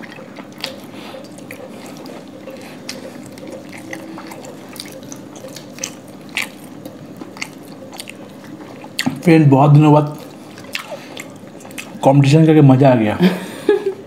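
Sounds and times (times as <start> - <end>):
lip smacks and mouth clicks: 0.0 - 9.2
people chewing food: 0.0 - 12.5.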